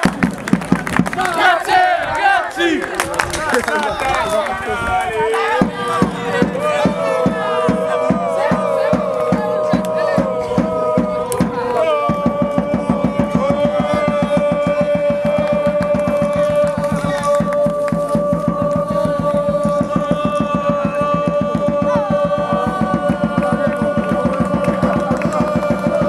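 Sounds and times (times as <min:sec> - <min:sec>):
fast drumbeat: 0:05.4 - 0:26.0.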